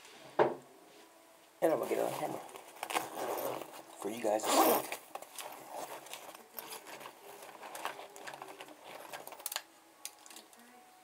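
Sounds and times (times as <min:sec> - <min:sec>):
plastic clicks and rattles: 0:06.1 - 0:10.6.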